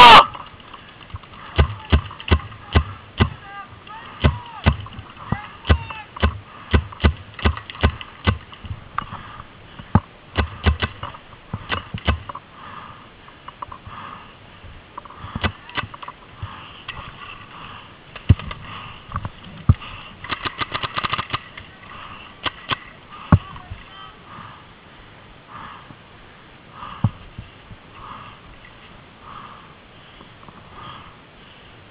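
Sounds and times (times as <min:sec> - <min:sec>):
paintball markers firing: 0:05.7 - 0:08.5, 0:20.2 - 0:21.6.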